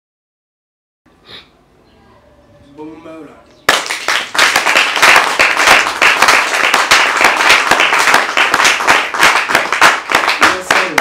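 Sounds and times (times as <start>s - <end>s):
congregation clapping: 3.7s - 11.0s.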